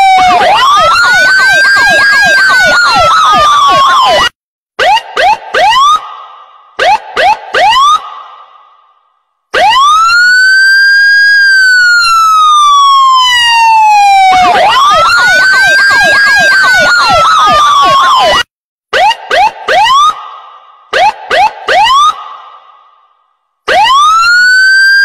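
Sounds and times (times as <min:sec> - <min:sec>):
electronic siren wailing: 0:00.0 - 0:06.0, 0:09.6 - 0:20.2, 0:23.7 - 0:25.0
siren rising whoops: 0:00.0 - 0:06.0, 0:09.6 - 0:20.2, 0:23.7 - 0:25.0
siren yelps: 0:00.0 - 0:06.0, 0:06.8 - 0:08.1, 0:09.5 - 0:20.2, 0:20.9 - 0:22.4, 0:23.7 - 0:25.0.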